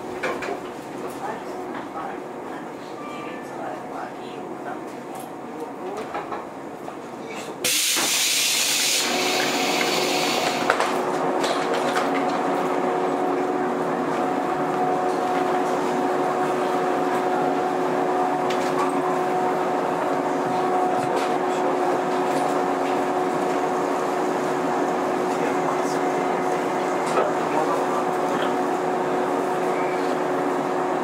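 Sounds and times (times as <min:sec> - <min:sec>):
train running noise: 0:00.0 - 0:31.0
loud blast of air hiss: 0:07.6 - 0:10.7.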